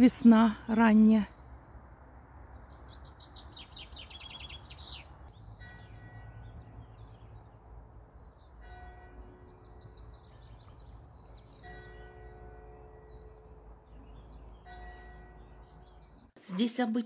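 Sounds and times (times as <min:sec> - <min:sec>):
songbird singing: 0:00.0 - 0:16.8
distant church bell tolling: 0:05.5 - 0:07.2, 0:08.6 - 0:10.8, 0:11.4 - 0:16.4.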